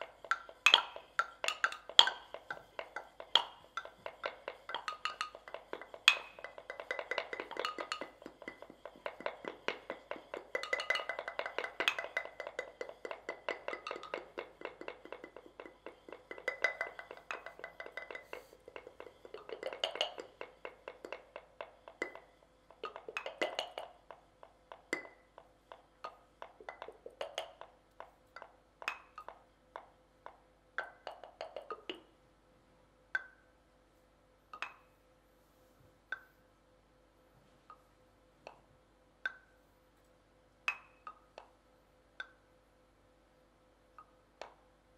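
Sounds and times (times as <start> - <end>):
wooden castanets clacking: 0.0 - 32.1.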